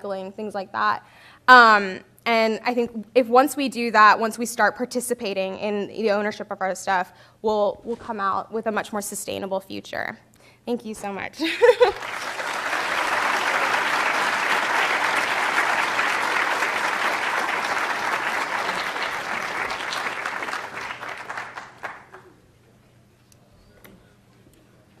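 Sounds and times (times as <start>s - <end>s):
audience applauding: 11.8s - 22.4s.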